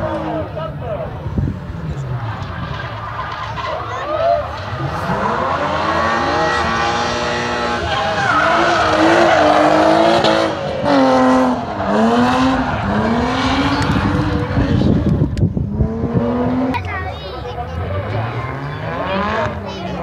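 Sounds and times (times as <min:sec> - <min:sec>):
car engine revving high: 0:01.4 - 0:16.9, 0:17.7 - 0:20.0
tyre squeal: 0:07.6 - 0:09.9.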